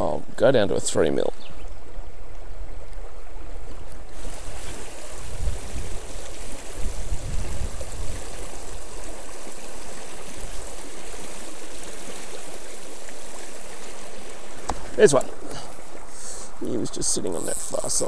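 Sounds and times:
river flowing over rocks: 2.0s - 16.5s
wind rumble on microphone: 4.2s - 9.1s.

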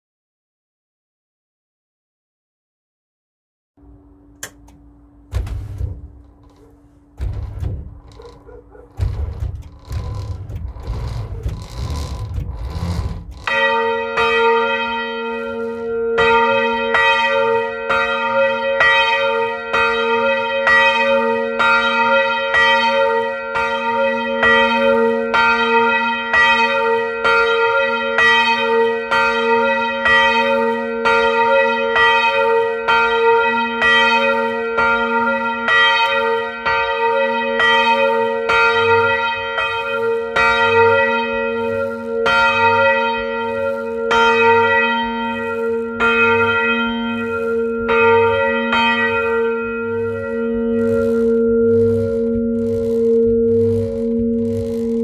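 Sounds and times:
low thuds: 4.4s - 13.7s
large church bell ringing: 5.8s - 52.6s.

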